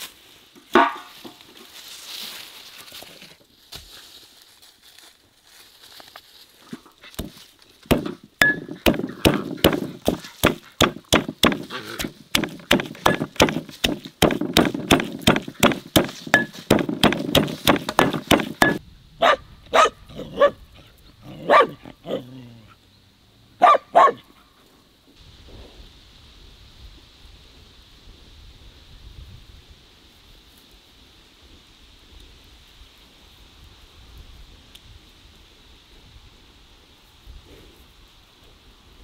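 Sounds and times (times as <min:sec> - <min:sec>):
pestle pounding in stone mortar: 0:07.2 - 0:18.8
dog barking: 0:19.2 - 0:20.6, 0:21.4 - 0:22.2, 0:23.6 - 0:24.3.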